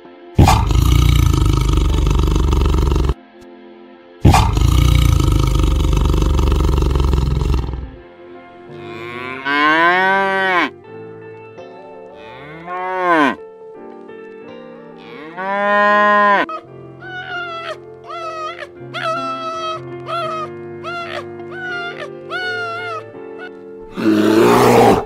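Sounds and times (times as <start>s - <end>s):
soft background music: 0.0s - 25.0s
cow mooing: 0.4s - 3.2s, 8.7s - 10.7s, 12.2s - 13.4s, 15.0s - 16.6s
tiger roaring: 0.4s - 3.2s, 4.2s - 8.0s, 23.9s - 25.0s.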